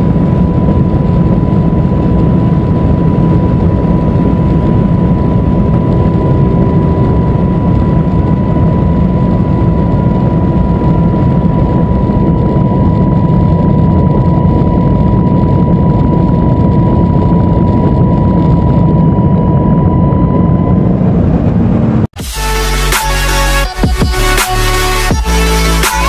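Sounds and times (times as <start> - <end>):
car interior wind and engine rush: 0.0 - 22.2
thin steady whine: 0.0 - 26.0
electronic music: 22.2 - 26.0.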